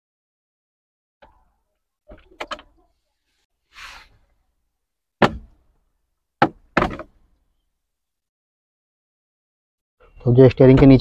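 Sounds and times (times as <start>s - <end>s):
short hiss: 3.7s - 4.2s
sharp plastic knocks: 5.2s - 5.6s, 6.4s - 7.2s.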